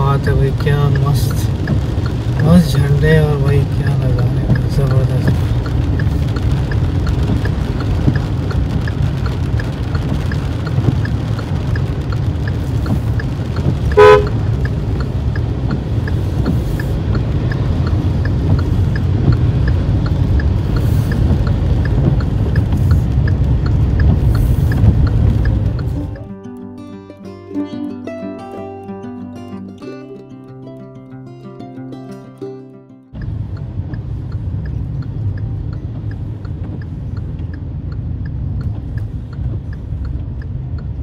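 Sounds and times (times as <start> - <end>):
light regular ticking: 0.0 - 26.9, 33.1 - 41.0
road and engine noise in car: 0.0 - 41.0
car horn toot: 13.9 - 14.4.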